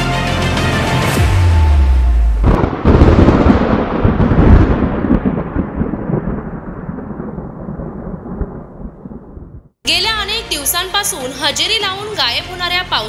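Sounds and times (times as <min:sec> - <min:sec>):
thunder crack and rumble: 0:02.2 - 0:09.8.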